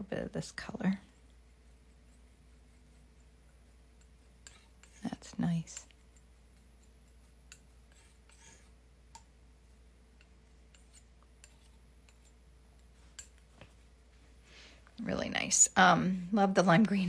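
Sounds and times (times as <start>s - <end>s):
steady low hum: 0.0s - 17.0s
palette knife scraping palette: 1.0s - 8.8s, 10.7s - 12.4s.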